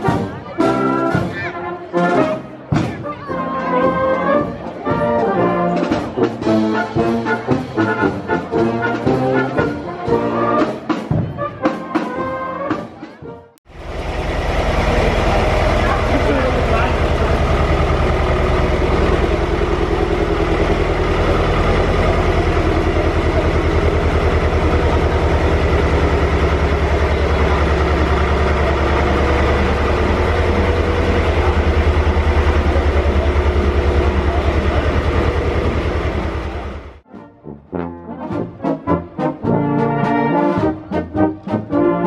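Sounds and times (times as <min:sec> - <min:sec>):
tractor engine running: 0:13.7 - 0:37.0.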